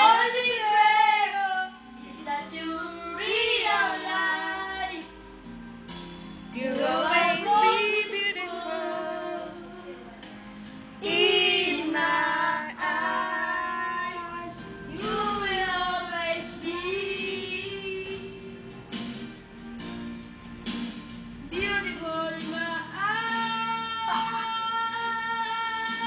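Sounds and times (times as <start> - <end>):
backing music: 0.0 - 26.0
child singing into a microphone: 21.6 - 26.0.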